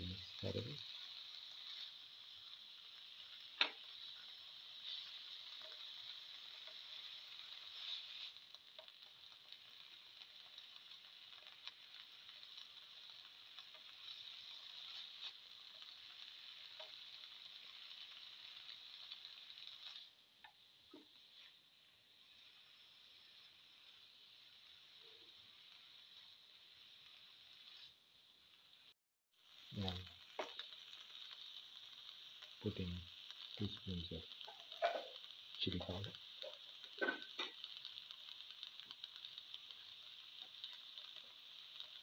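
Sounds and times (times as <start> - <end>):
vegetables sizzling in a frying pan: 0.0 - 42.0
spatula scraping a pan: 3.2 - 9.7.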